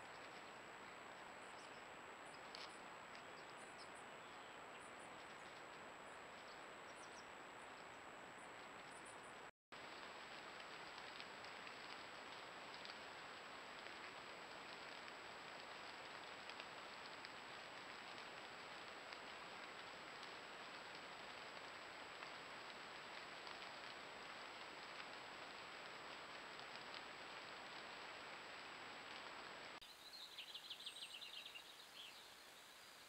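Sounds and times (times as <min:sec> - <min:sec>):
faint ticks: 0:02.4 - 0:03.9, 0:09.8 - 0:29.6
microphone hiss: 0:05.8 - 0:33.0.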